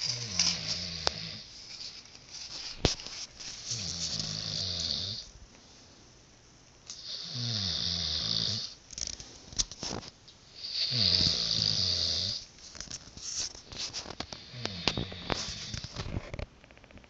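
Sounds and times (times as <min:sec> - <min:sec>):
rattling snores: 0:00.0 - 0:01.5, 0:03.7 - 0:05.3, 0:07.0 - 0:08.8, 0:10.6 - 0:12.4, 0:14.3 - 0:16.2.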